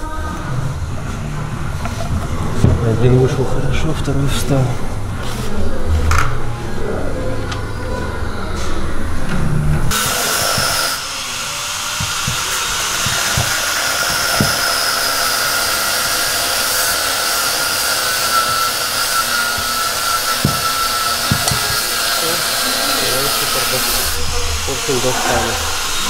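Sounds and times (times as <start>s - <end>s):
compressed air hissing: 9.9s - 26.0s.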